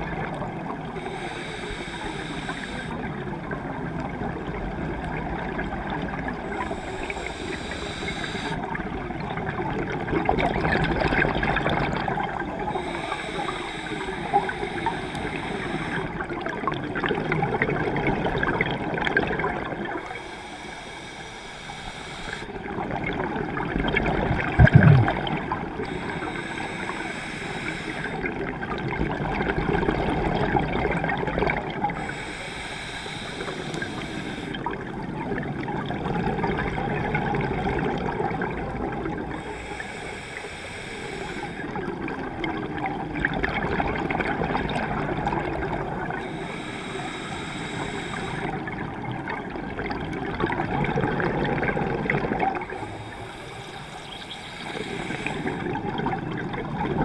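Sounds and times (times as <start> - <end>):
hissing inhale through regulator: 0.9 - 3.2, 6.4 - 8.8, 12.4 - 16.3, 19.9 - 22.8, 25.6 - 28.5, 31.9 - 34.8, 39.3 - 41.9, 46.1 - 48.8, 52.6 - 56.2
bubbling exhale: 6.4 - 8.7, 10.4 - 16.3, 18.3 - 28.5, 43.9 - 48.9, 49.8 - 57.0.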